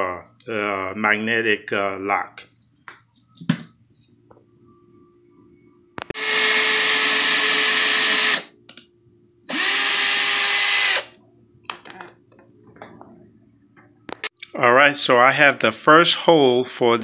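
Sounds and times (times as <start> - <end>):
cordless drill whining: 6.1 - 8.5, 9.5 - 11.1.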